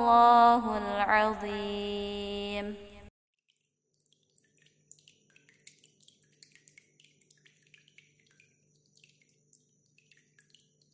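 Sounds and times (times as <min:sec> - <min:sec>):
water drops plinking: 0:03.5 - 0:10.9.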